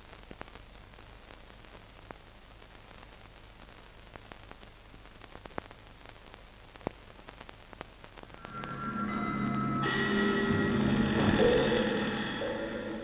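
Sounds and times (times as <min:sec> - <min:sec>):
film soundtrack hiss and crackles: 0:00.0 - 0:13.0
low steady hum: 0:00.0 - 0:13.0.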